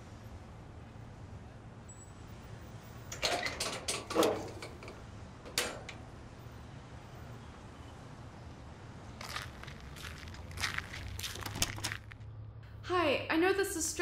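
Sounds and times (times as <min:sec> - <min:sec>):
low street hum: 0:00.0 - 0:14.0
clatter of clicks and knocks: 0:03.1 - 0:06.0.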